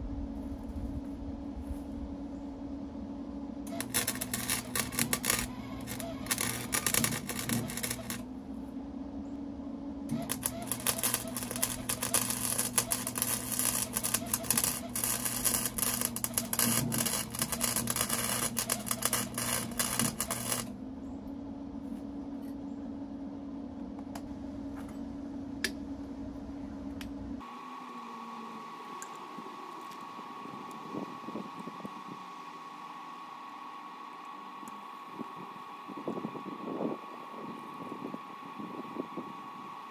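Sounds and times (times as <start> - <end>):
steady hum: 0.0 - 39.9
welder arc crackling: 3.7 - 8.3, 10.1 - 20.8, 28.3 - 36.3.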